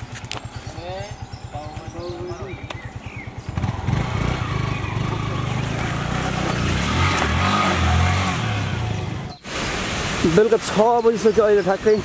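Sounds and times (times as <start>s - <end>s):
motorcycle engine revving: 0.0s - 9.4s.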